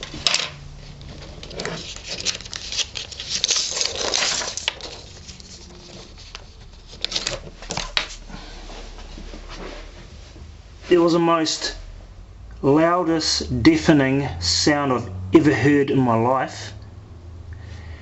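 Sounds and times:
paper rustling: 0.0 - 8.6.

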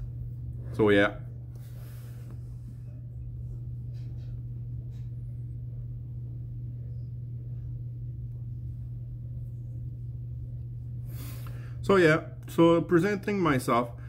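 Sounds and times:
steady low hum: 0.0 - 14.0
soft puffs on a pipe: 1.4 - 5.4, 10.9 - 11.8.

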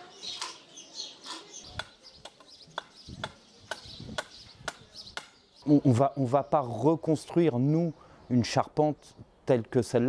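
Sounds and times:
birds calling: 0.0 - 10.0
axe striking wood: 1.3 - 5.4.

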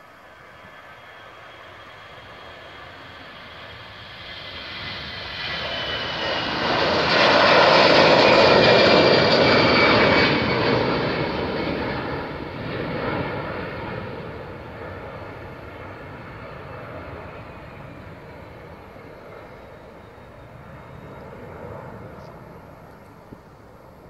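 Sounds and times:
jet engines taking off: 0.0 - 24.0.

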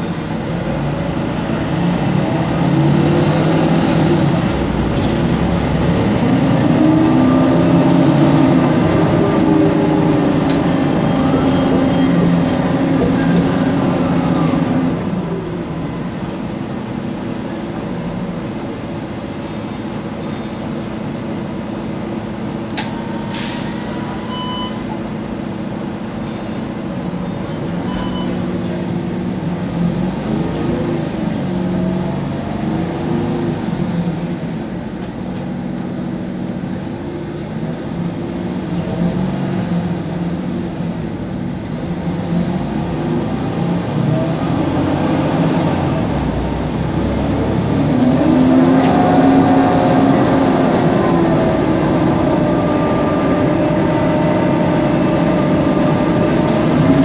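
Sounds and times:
bus engine and fan drone: 0.0 - 57.0
short electronic beeps: 24.2 - 24.9, 26.2 - 28.4.

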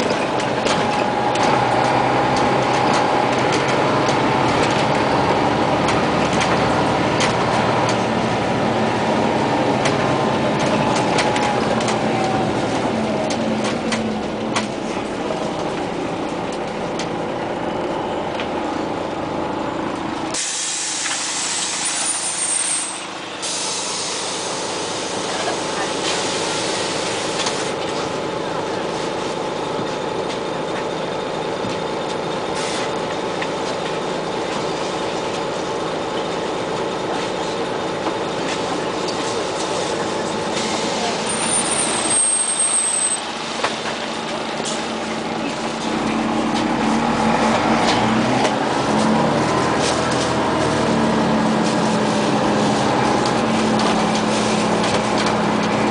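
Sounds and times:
bus engine and cabin drone: 0.0 - 55.9
high air squeal: 20.4 - 25.1, 40.5 - 43.2.

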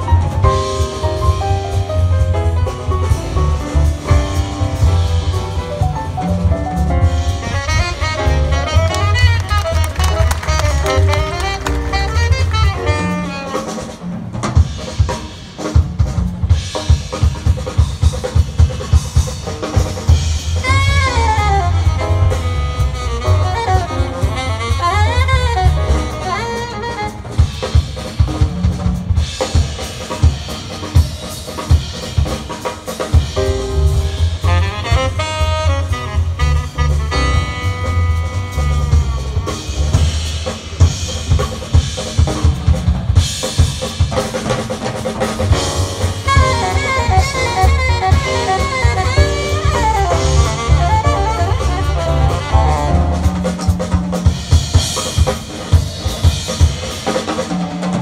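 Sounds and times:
drum kit playing: 0.0 - 58.0
saxophone phrases: 7.4 - 14.0, 20.6 - 27.4, 34.5 - 39.5, 46.3 - 53.7.

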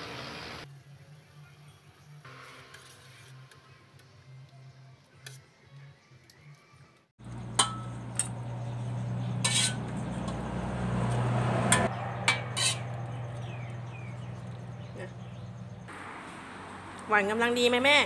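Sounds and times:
steady low hum: 7.2 - 15.9
ladle clinking against pot: 7.5 - 8.3, 11.7 - 13.1
metal ladle stirring in pot: 9.3 - 10.6, 11.7 - 14.7.

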